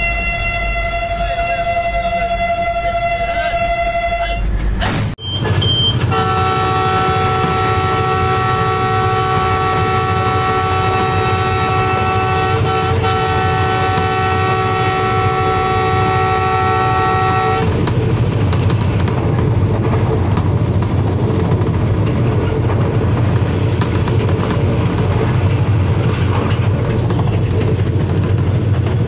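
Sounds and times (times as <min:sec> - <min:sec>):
locomotive horn: 0:00.0 - 0:04.6, 0:06.0 - 0:17.8
train rumbling on track: 0:00.0 - 0:29.0.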